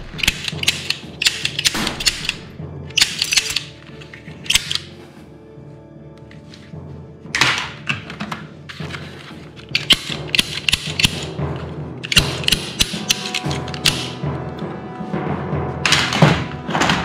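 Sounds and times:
background music: 0.0s - 17.0s
toy gun parts clicking: 0.1s - 3.8s, 4.5s - 4.9s, 9.6s - 11.4s, 12.0s - 14.2s.

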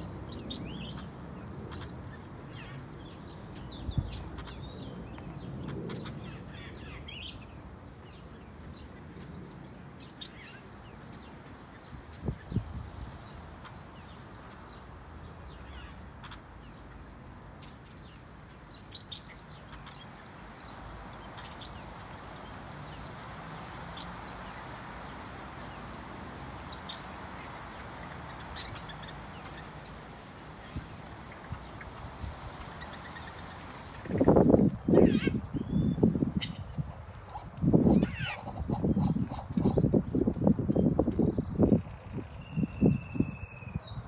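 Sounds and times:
small birds chirping: 0.0s - 44.0s.

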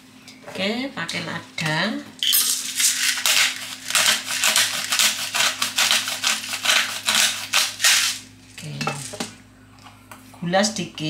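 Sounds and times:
pepper mill grinding: 2.2s - 9.2s.

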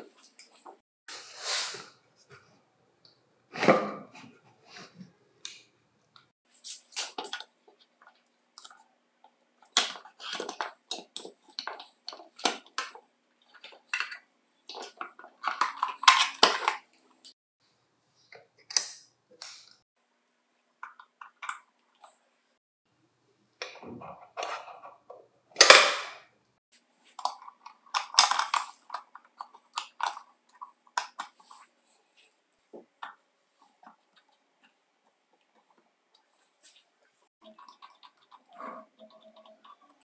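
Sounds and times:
plastic parts clicking and rattling: 9.6s - 17.0s, 27.1s - 31.5s.

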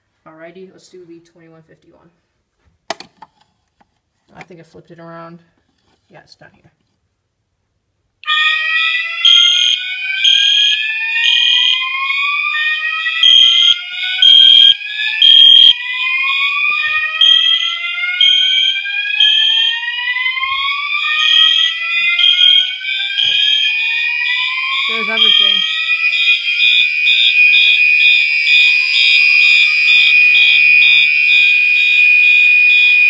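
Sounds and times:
rising whoop alarm sweeps: 8.2s - 33.0s
steady high alarm tone: 8.2s - 33.0s
pulsing high beep: 14.2s - 15.8s, 24.9s - 25.8s.

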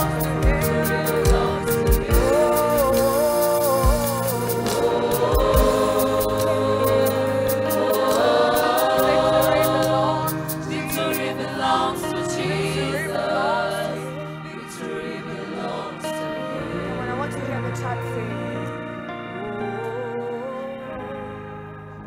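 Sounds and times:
high ticking beat: 0.0s - 11.6s
gospel choir singing: 0.0s - 21.6s
instrumental backing music: 0.0s - 22.0s.

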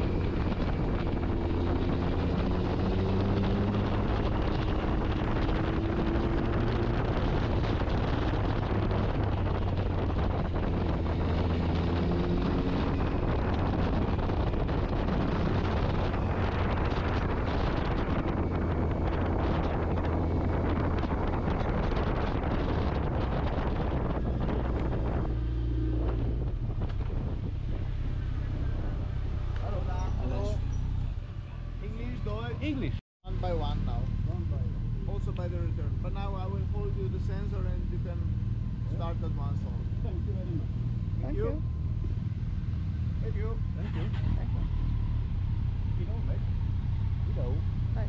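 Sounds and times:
wind rush on microphone: 0.0s - 31.3s.

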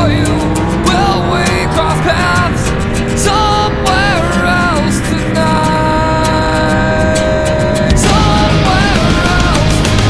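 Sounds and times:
rock music with drums: 0.0s - 10.0s.

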